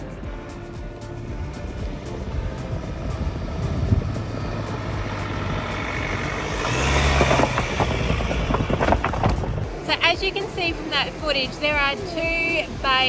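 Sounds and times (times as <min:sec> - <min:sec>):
vehicle engine passing: 0:00.0 - 0:13.0.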